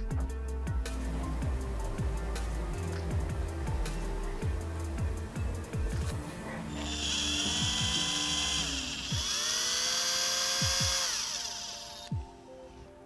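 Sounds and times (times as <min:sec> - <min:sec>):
rotary tool drilling metal: 0:06.7 - 0:12.2.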